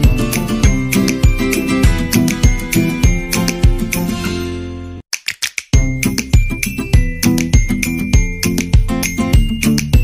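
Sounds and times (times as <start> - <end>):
background music with steady beat: 0.0 - 4.3, 5.2 - 10.0.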